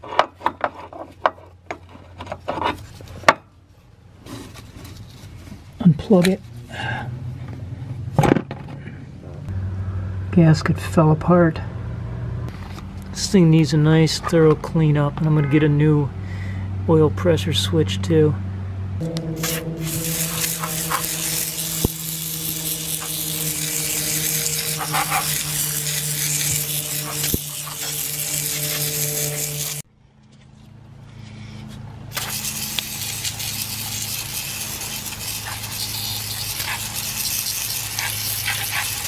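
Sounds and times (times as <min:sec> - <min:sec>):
steady low hum: 0:15.7 - 0:39.0
aerosol spray hissing: 0:19.4 - 0:29.8, 0:32.2 - 0:39.0.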